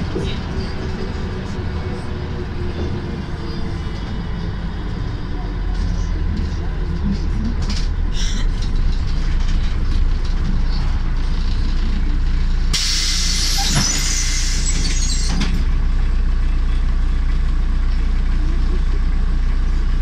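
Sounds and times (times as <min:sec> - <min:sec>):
bus diesel engine: 0:00.0 - 0:20.0
road rumble: 0:00.0 - 0:20.0.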